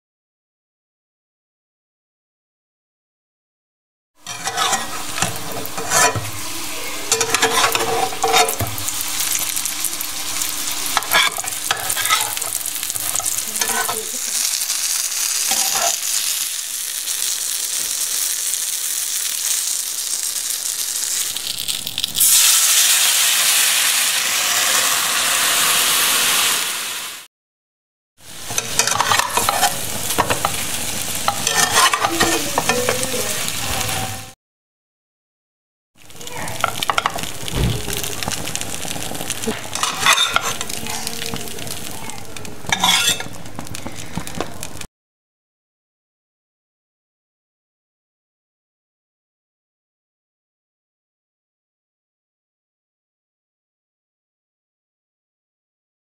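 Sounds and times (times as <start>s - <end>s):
metal spatula scraping a pan: 4.2s - 16.4s, 28.3s - 34.2s, 38.0s - 44.2s
dough sizzling in a pan: 4.2s - 27.3s, 28.2s - 34.4s, 36.0s - 44.9s.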